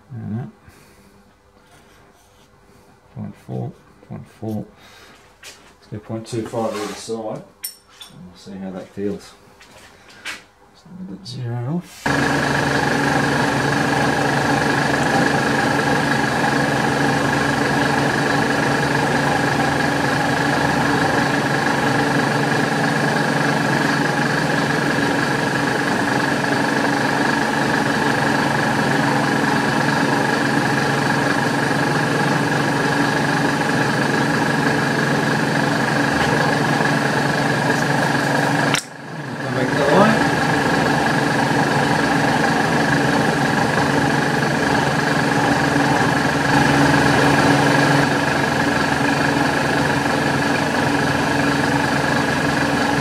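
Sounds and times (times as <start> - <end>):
milling machine whine: 12.1 - 53.0.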